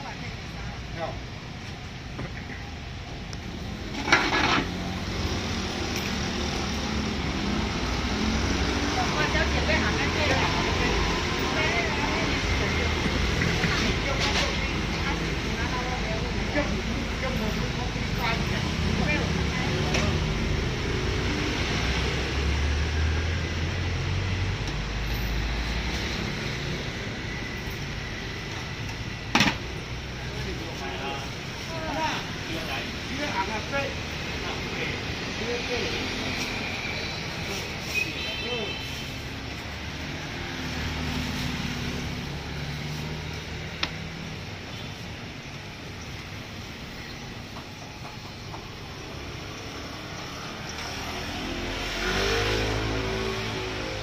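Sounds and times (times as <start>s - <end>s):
street traffic hum: 0.0s - 54.0s
passing vehicle rumble: 3.4s - 29.2s, 48.6s - 54.0s.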